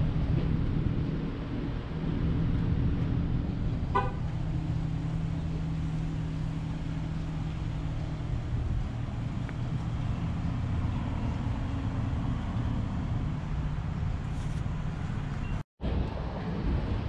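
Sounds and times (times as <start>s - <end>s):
vehicle engine humming: 0.0s - 17.0s
car horn toot: 3.9s - 4.3s.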